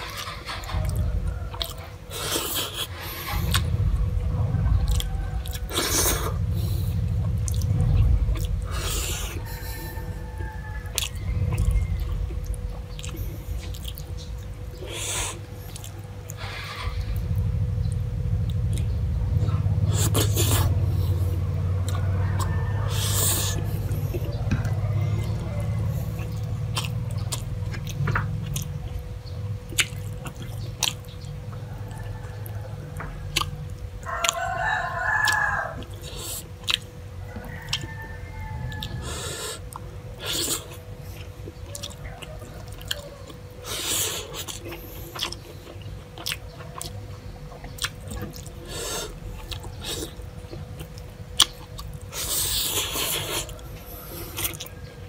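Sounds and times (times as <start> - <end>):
rooster crowing: 0.0 - 2.1, 3.3 - 7.1, 8.7 - 12.7, 19.6 - 26.7, 31.5 - 36.3, 37.1 - 39.7, 41.6 - 44.4, 48.8 - 50.2, 52.5 - 55.0
chewing: 0.0 - 55.0
faint steady hum: 0.0 - 55.0.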